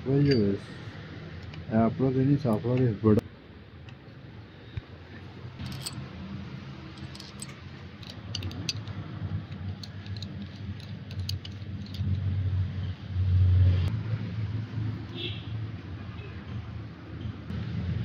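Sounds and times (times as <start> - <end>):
small metal parts clinking: 5.6 - 6.1, 6.8 - 12.4.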